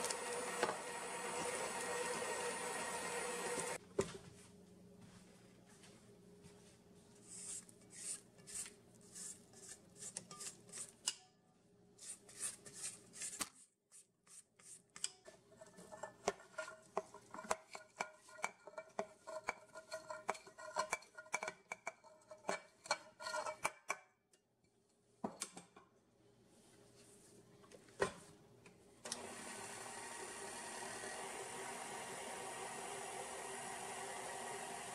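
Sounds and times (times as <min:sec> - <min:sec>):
spatula scraping steel bowl: 0:07.3 - 0:11.2, 0:12.0 - 0:13.4, 0:14.3 - 0:23.9
utensil scraping bowl with clicks: 0:08.0 - 0:11.3, 0:14.6 - 0:24.1.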